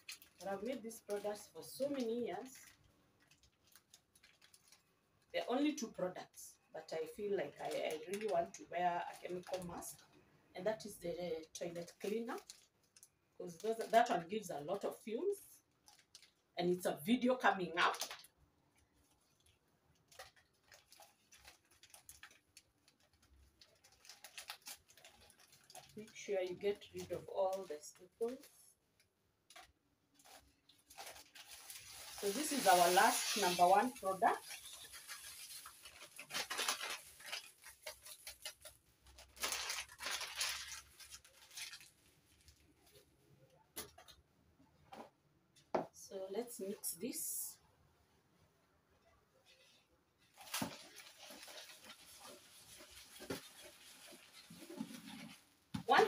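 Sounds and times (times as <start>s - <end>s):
plastic packets crinkling: 0.0s - 5.0s, 7.4s - 10.0s, 11.5s - 14.3s, 15.6s - 16.6s, 17.8s - 18.4s, 19.0s - 28.6s, 29.4s - 43.0s, 50.3s - 56.0s
powder pouring into plastic basin: 31.5s - 34.0s.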